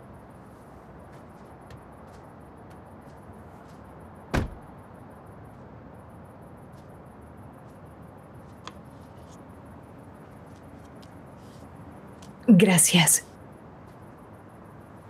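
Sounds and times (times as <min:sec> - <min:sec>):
car door shutting: 0:04.3 - 0:04.6
low background hiss: 0:04.3 - 0:15.0.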